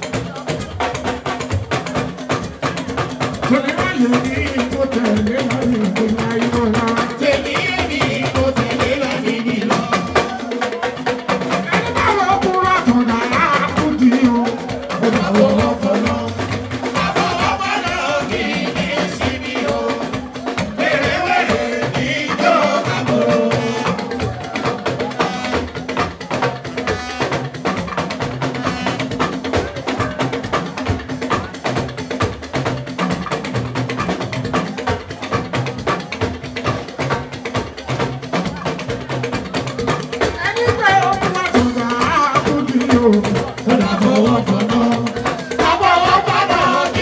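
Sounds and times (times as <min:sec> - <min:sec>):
live band drums and percussion: 0:00.0 - 0:47.0
person singing: 0:11.6 - 0:25.3, 0:41.0 - 0:47.0.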